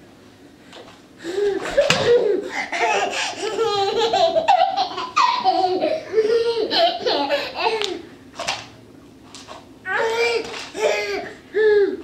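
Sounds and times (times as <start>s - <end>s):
toddler giggling: 1.5s - 8.1s, 9.9s - 12.0s.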